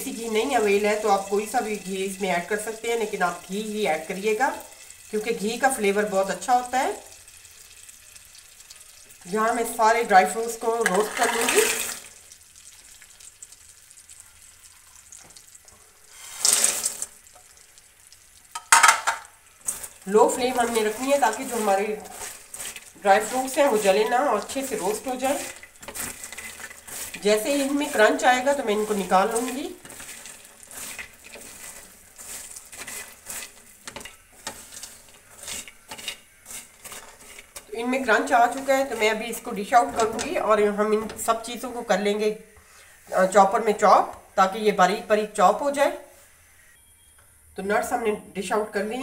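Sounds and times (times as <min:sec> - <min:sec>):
nuts poured into hot oil: 0:00.0 - 0:41.5
faint oil sizzle: 0:00.0 - 0:46.8.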